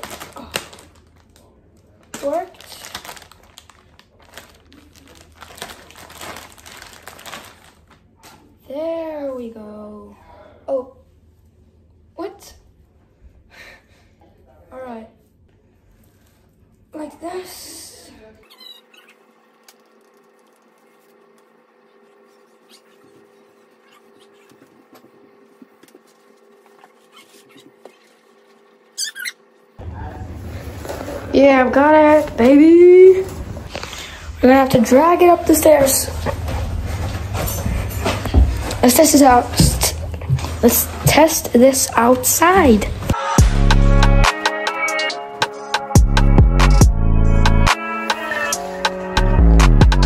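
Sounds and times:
plastic zip bag crinkling: 0:00.0 - 0:08.1
faint hum: 0:00.0 - 0:44.2
net rustling: 0:02.1 - 0:08.0, 0:26.0 - 0:28.7.

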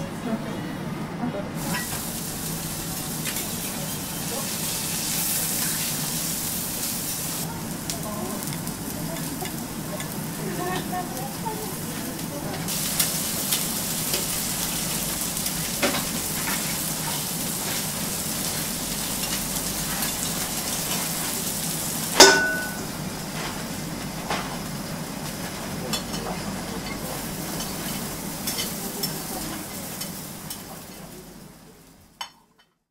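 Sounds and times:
food sizzling in oil on griddle: 0:01.6 - 0:31.9
sharp clink: 0:22.2 - 0:22.8.

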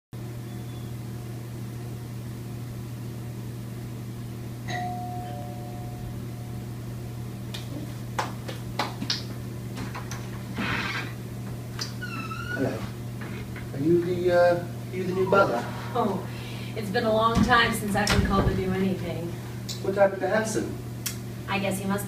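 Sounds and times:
low hum: 0:00.2 - 0:07.8
two-note doorbell chime: 0:04.7 - 0:06.6.

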